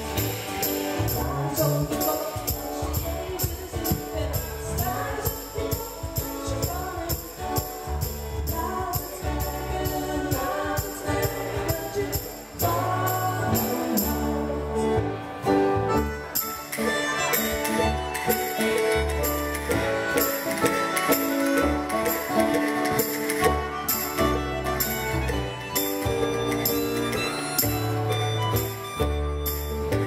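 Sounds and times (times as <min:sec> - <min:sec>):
high percussion beat: 0:00.0 - 0:14.2, 0:16.4 - 0:30.0
drum kit: 0:00.0 - 0:15.1, 0:15.7 - 0:30.0
person singing: 0:00.0 - 0:28.1
acoustic guitar: 0:00.0 - 0:30.0
keyboard: 0:00.0 - 0:30.0
melodica: 0:15.9 - 0:30.0.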